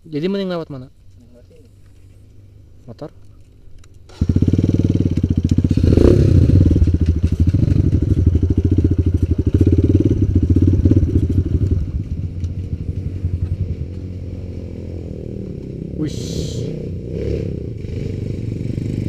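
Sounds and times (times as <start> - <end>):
dirt bike engine running: 4.1 - 19.0.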